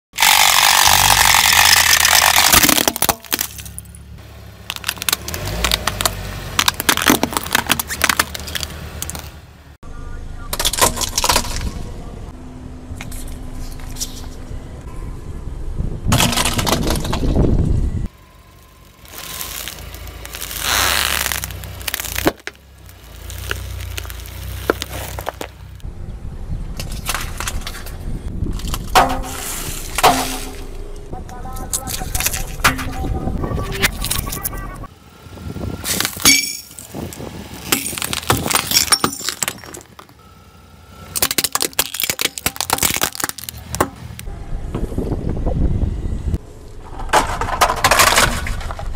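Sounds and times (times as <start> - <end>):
car tyre crushing plastic toys: 0.2 - 4.0, 4.6 - 9.4, 10.5 - 11.8, 16.1 - 17.4, 18.9 - 25.8, 26.8 - 30.8, 35.8 - 40.2, 41.1 - 44.3, 46.8 - 48.9
low car rumble: 0.2 - 48.9
hard candy cracking: 19.4 - 25.5.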